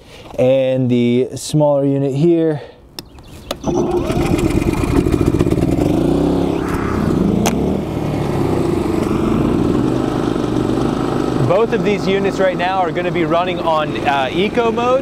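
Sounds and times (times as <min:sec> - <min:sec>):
generator pull-started: 0:03.6 - 0:05.5
generator running: 0:03.6 - 0:12.0.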